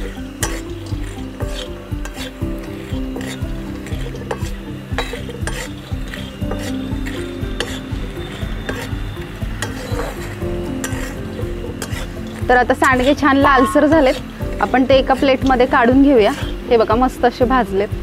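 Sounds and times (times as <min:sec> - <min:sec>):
spatula scraping a pan: 0:00.0 - 0:17.0
background music: 0:00.0 - 0:18.0
dumplings sizzling in oil: 0:00.0 - 0:18.0.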